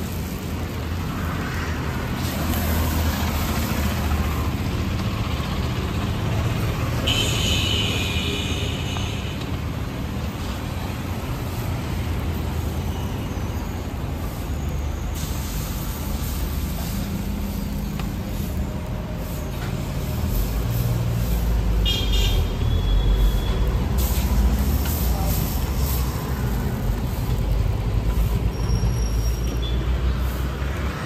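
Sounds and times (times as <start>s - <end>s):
street traffic rumble: 0.0s - 31.0s.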